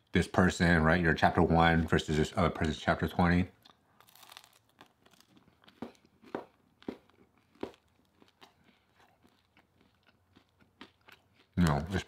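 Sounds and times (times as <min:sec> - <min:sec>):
chewing food with moist crunches: 0:03.5 - 0:12.0.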